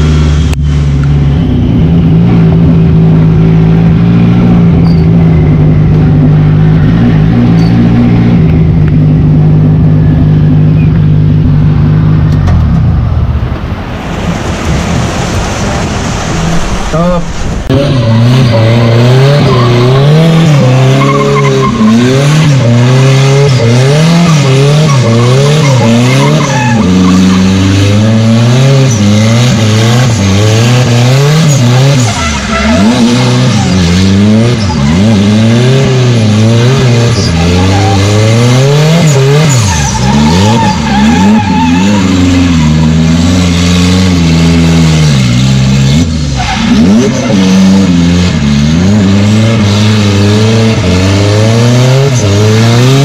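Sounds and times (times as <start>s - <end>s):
car engine revving hard: 14.8s - 53.0s.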